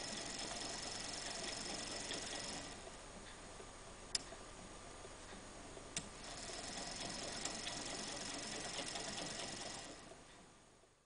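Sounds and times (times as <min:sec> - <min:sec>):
small engine rhythmic ticking: 0:00.0 - 0:02.8, 0:06.2 - 0:10.2
sharp click: 0:04.1 - 0:04.3.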